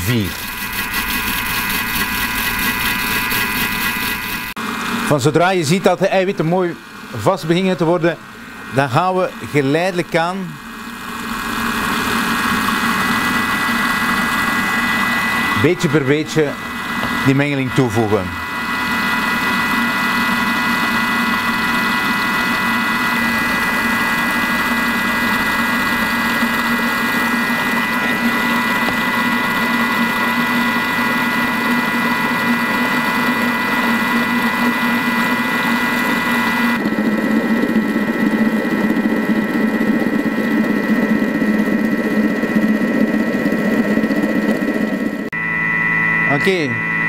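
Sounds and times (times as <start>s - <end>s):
food processor motor whirring: 0.0s - 5.6s, 6.2s - 45.3s.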